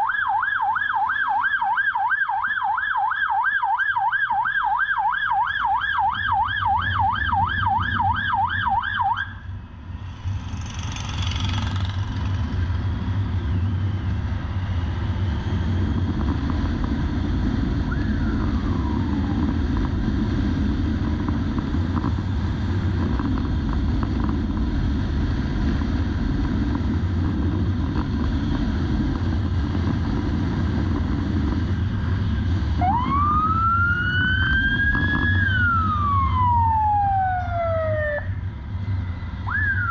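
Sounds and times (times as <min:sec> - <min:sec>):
motorcycle siren: 0:00.0 - 0:09.6, 0:17.8 - 0:19.9, 0:32.2 - 0:38.4, 0:39.0 - 0:39.9
motorcycle engine at speed: 0:09.2 - 0:36.5
wind noise: 0:09.5 - 0:39.9.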